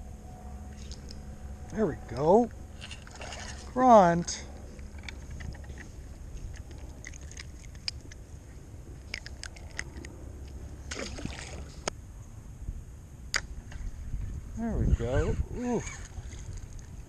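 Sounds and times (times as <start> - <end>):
wind rumble on microphone: 0.0 - 17.0
small clicks of fishing tackle: 4.8 - 8.2, 9.0 - 10.6
bait splashing into water: 10.9 - 11.8.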